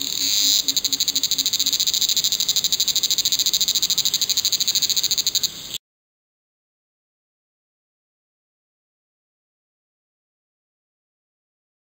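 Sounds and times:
cicada buzzing: 0.0 - 5.8.

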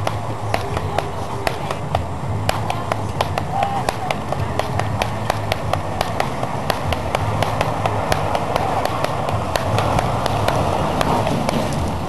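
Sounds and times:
practice sticks clacking: 0.0 - 12.0
steady low rumble: 0.0 - 12.0.

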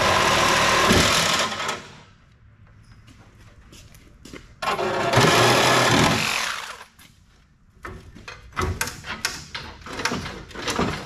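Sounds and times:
metal clanks and knocks: 7.8 - 11.0.

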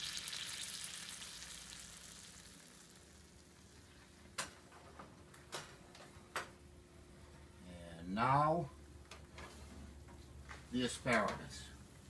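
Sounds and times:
pan sizzling faintly: 0.0 - 4.4.

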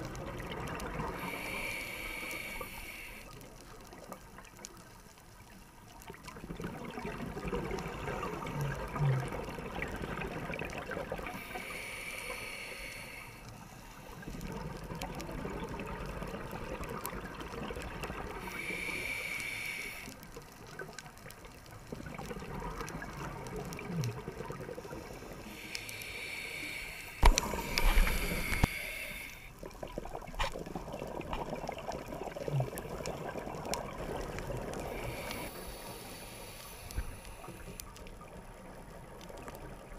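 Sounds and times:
bubbling exhale: 0.3 - 3.3, 6.6 - 20.2, 22.0 - 38.0
diver breathing through regulator: 1.2 - 3.4, 11.3 - 14.4, 18.4 - 20.2, 24.9 - 29.6, 34.7 - 37.9.

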